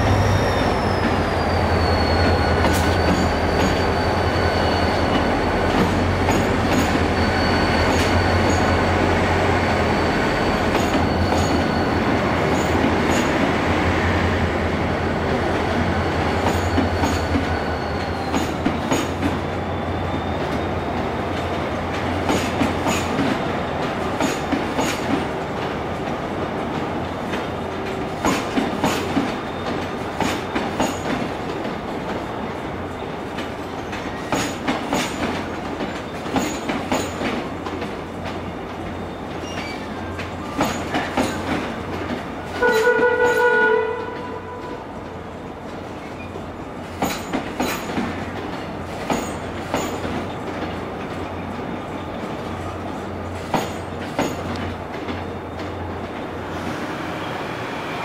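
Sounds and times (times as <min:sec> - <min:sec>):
diesel locomotive engine drone: 0:00.0 - 0:58.0
train wheels clicking over rail joints: 0:00.1 - 0:13.9, 0:15.6 - 0:19.5, 0:20.4 - 0:32.3, 0:33.0 - 0:44.3, 0:45.0 - 0:56.3.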